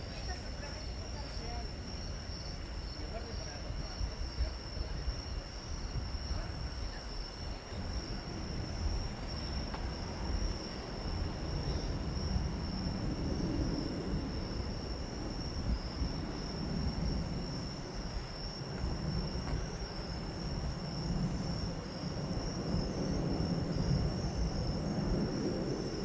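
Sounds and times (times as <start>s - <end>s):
night insects trilling: 0.0s - 26.0s.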